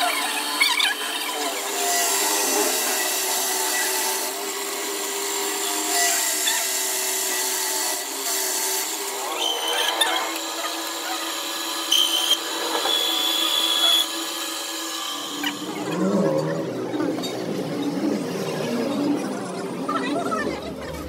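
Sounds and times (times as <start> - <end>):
drill press boring into steel: 0.0 - 15.8
lathe cutting steel: 0.0 - 21.0.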